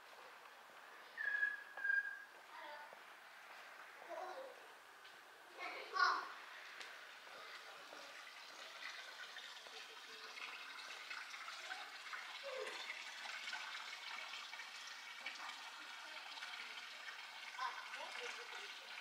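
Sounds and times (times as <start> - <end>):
running water: 5.6 - 19.0.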